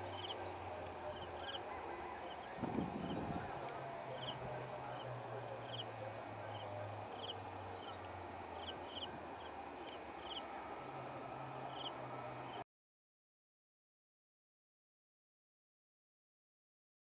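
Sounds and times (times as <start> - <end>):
bird chirping: 0.0 - 10.6, 11.6 - 12.6
distant train hum: 0.0 - 12.6.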